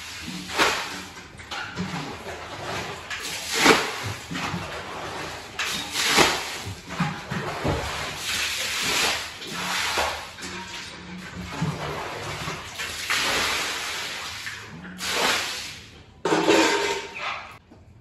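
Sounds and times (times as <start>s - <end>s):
water splashing on wet carpet: 0.0s - 1.0s, 1.9s - 10.4s, 11.4s - 15.9s.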